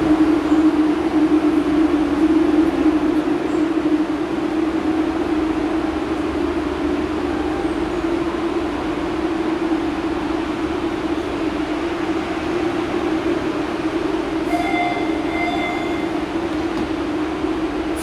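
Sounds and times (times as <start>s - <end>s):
train equipment low hum: 0.0s - 18.0s
brief high tone: 14.5s - 16.1s.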